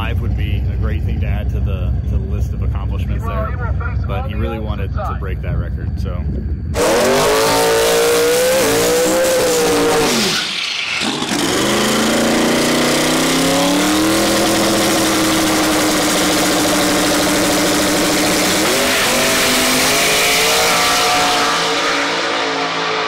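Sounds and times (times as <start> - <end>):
drag car engine revving: 6.7 - 23.0.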